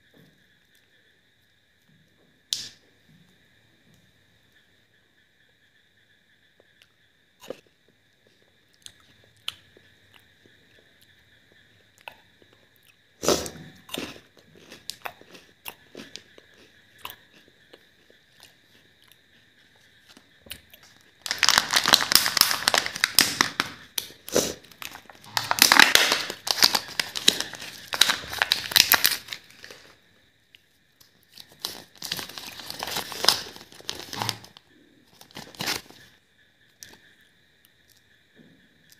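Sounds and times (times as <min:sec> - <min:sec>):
foil packaging crinkling and tearing: 0:21.2 - 0:23.8, 0:24.8 - 0:29.9, 0:31.4 - 0:36.1.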